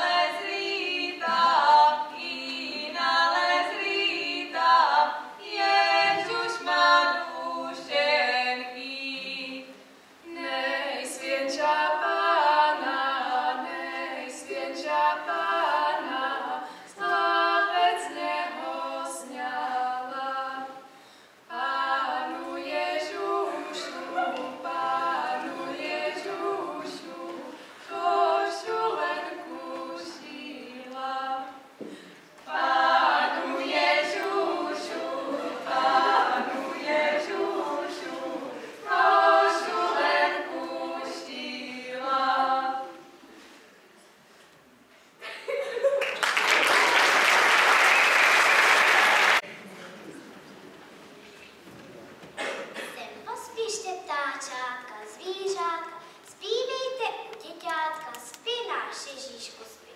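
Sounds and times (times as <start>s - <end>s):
choir singing a cappella: 0.0s - 20.9s, 21.5s - 31.8s, 32.4s - 43.6s.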